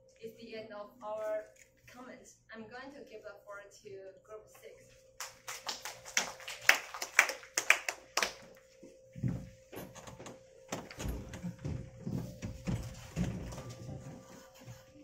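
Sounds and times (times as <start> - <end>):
hand claps: 5.2 - 8.6
people shuffling into seats: 8.6 - 15.0.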